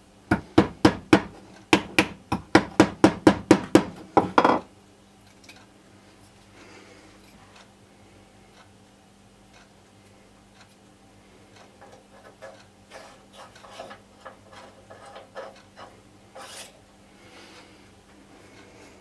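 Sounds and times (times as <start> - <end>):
hand tool scraping and clicking: 11.8 - 16.8.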